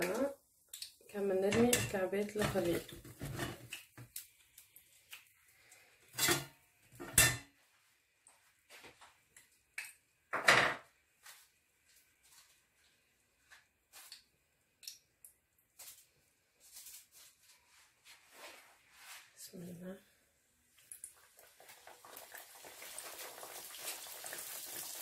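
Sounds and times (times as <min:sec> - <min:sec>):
utensils clinking on metal pots: 0:01.4 - 0:03.6, 0:06.2 - 0:07.5.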